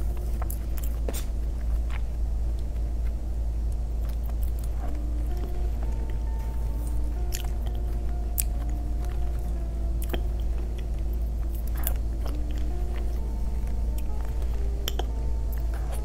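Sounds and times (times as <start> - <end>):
chewing and biting: 0.0 - 3.2, 4.0 - 16.0
steady low hum: 0.0 - 16.0
wet mouth clicks: 14.8 - 15.1.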